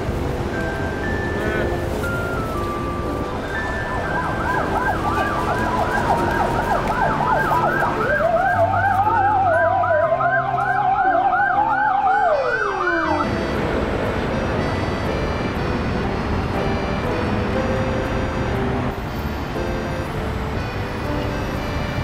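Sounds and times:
ambulance siren yelp: 0:00.7 - 0:13.8
slow wavering siren wail: 0:02.4 - 0:13.7.

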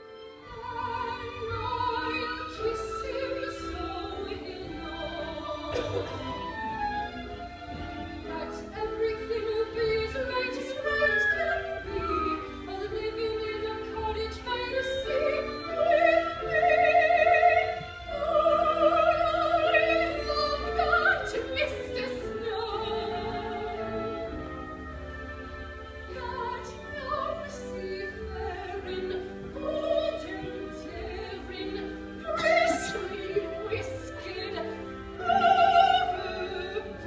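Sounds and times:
instrumental accompaniment: 0:00.0 - 0:37.0
woman singing with vibrato: 0:00.4 - 0:06.8, 0:08.2 - 0:24.5, 0:26.1 - 0:37.0.

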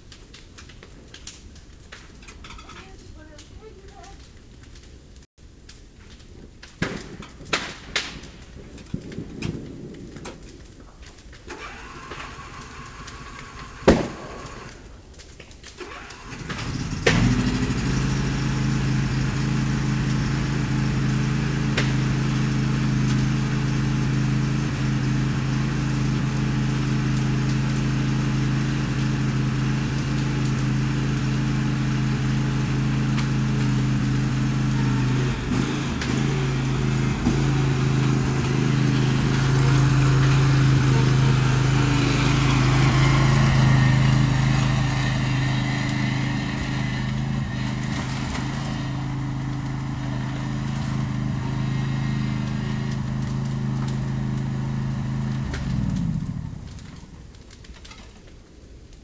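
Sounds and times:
tractor engine idling: 0:11.5 - 0:15.1, 0:15.8 - 0:57.4.

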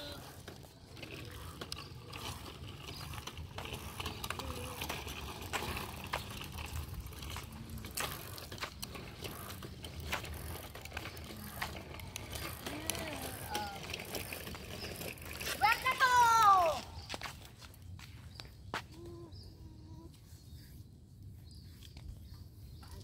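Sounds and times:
bicycle rattling and clicking: 0:00.0 - 0:18.0.

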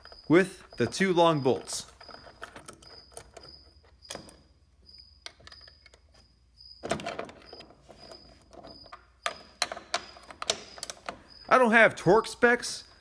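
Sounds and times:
hex key clicking on metal bolts: 0:01.8 - 0:06.1, 0:06.8 - 0:11.4.

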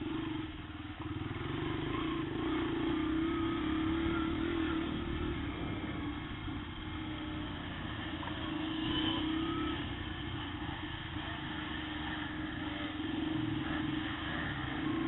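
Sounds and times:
dirt bike engine running: 0:00.0 - 0:15.0.

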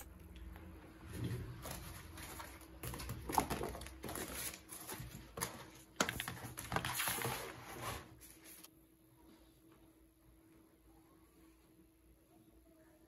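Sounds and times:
paper rustling: 0:01.6 - 0:08.7.

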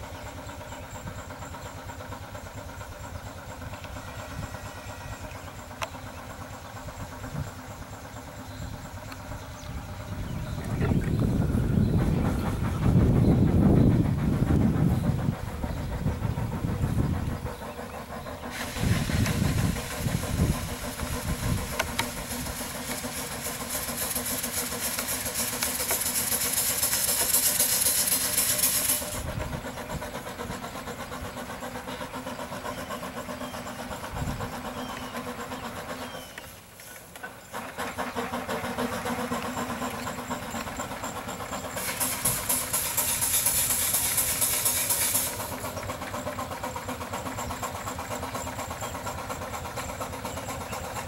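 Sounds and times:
steam engine low rumble: 0:00.0 - 0:51.0
hiss of escaping steam: 0:16.4 - 0:30.6, 0:41.7 - 0:45.8.

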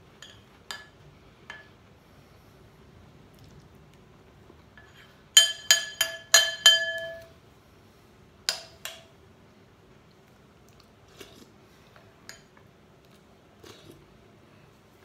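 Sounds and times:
spoon clinking against ceramic bowl: 0:04.8 - 0:07.3.

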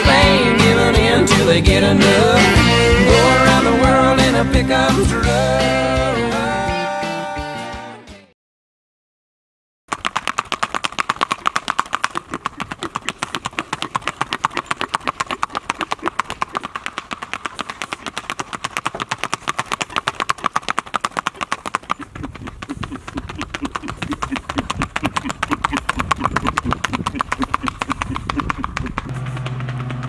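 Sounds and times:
horse hooves on pavement: 0:09.9 - 0:30.0.

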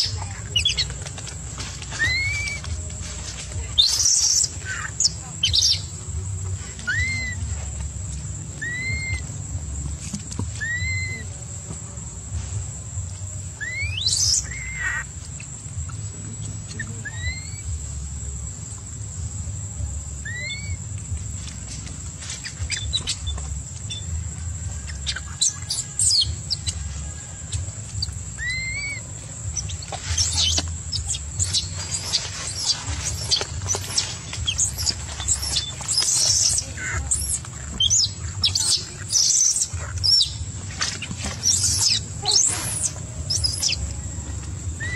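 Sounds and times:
steady low hum: 0:00.0 - 0:44.9
thin high hiss: 0:01.8 - 0:44.9
scratchy rustling and clicks: 0:29.3 - 0:44.0.

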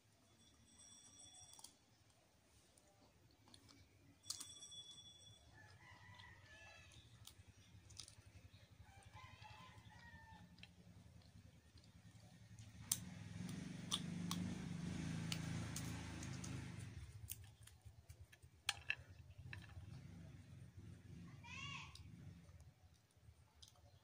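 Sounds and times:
faint rooster crowing: 0:05.4 - 0:07.4, 0:08.6 - 0:11.0.

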